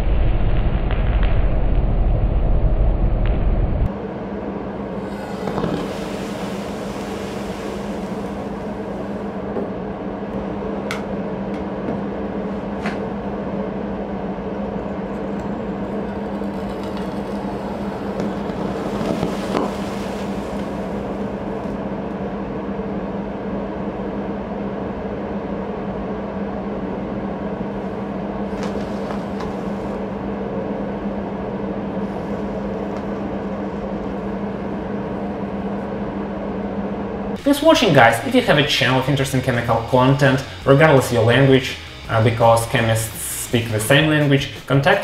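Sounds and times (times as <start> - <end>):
steady mechanical hum: 2.1 - 45.0
hissing: 4.8 - 9.6, 15.6 - 21.8.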